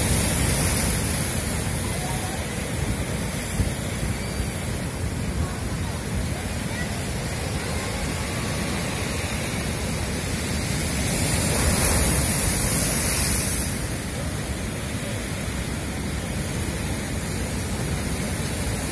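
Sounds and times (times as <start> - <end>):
sea surf rushing over shore: 0.0 - 18.9
wave breaking against rocks: 0.0 - 18.9.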